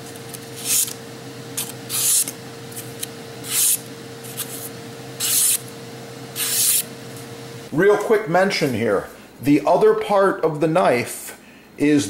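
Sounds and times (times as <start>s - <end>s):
faint steady hum: 0.0s - 12.0s
knife slicing paper: 0.2s - 5.6s, 6.4s - 6.9s.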